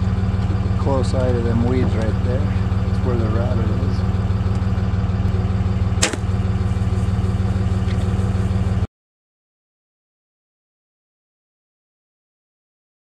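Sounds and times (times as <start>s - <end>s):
truck engine idling: 0.0s - 8.9s
bow snapping: 6.0s - 6.3s.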